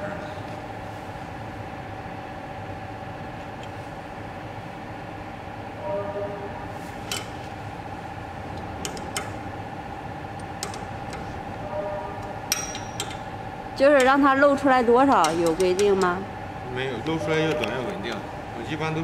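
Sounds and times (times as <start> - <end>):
machine hum with high tone: 0.0 - 19.0
metallic clicks and taps: 10.4 - 11.3, 12.5 - 13.2.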